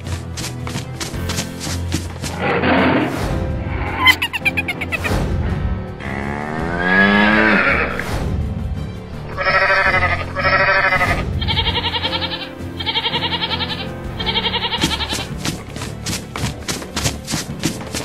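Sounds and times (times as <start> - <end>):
background music: 0.0 - 18.0
goat bleating: 9.3 - 15.4.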